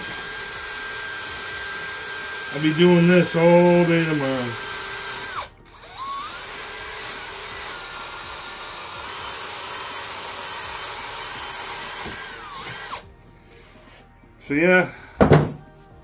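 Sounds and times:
cordless drill motor whining: 0:00.0 - 0:13.1.

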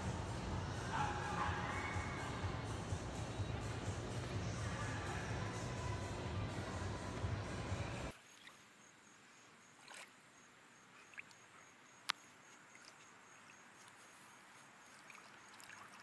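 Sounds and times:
music: 0:00.0 - 0:08.1
water lapping and splashing: 0:08.0 - 0:16.0.

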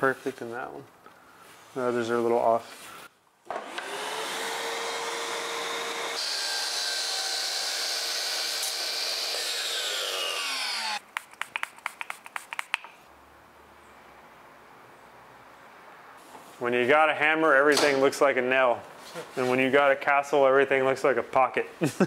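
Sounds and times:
miter saw cutting board: 0:03.5 - 0:11.0
saw blade winding down whine: 0:03.5 - 0:11.0
sharp clicks and taps: 0:11.0 - 0:13.0.

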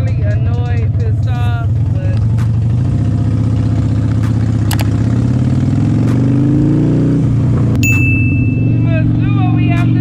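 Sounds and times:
motorcycle engine accelerating: 0:00.0 - 0:10.0
sharp clicks: 0:04.2 - 0:05.0.

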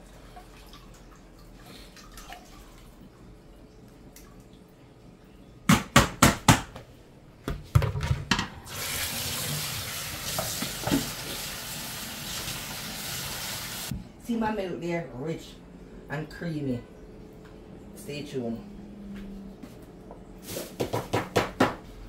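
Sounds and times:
running water: 0:08.6 - 0:14.0.

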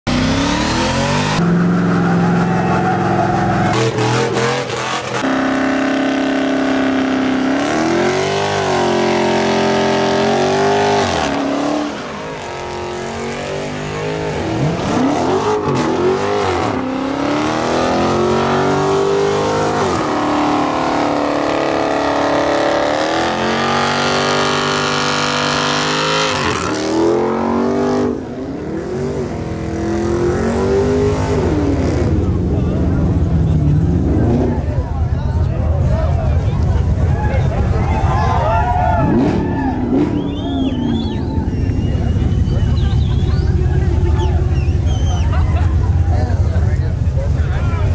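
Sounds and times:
vehicle engines revving hard: 0:00.0 - 0:47.9.

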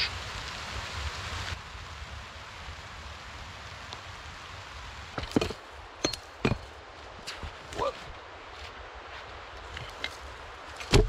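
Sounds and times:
steady outdoor hiss: 0:00.0 - 0:11.0
hatchet striking log: 0:05.2 - 0:06.7.

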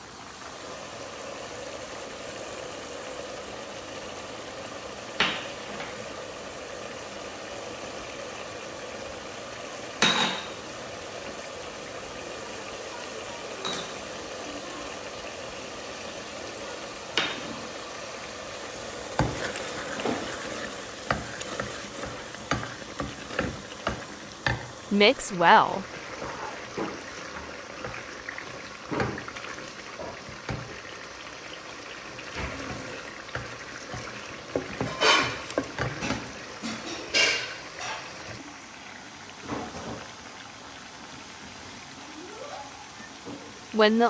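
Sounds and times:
frying sizzle: 0:00.0 - 0:44.0
wooden spoon stirring in pot: 0:18.5 - 0:38.4
spoon knocking against pot: 0:21.0 - 0:24.7, 0:29.9 - 0:30.8.

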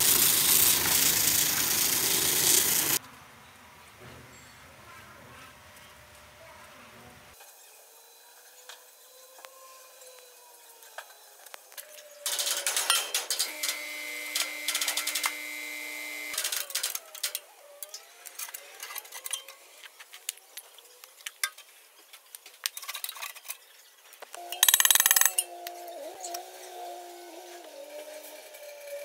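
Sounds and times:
loud mechanical noise: 0:00.0 - 0:03.0, 0:13.4 - 0:17.3
hand tools clinking on metal: 0:12.3 - 0:13.8, 0:24.4 - 0:25.7.

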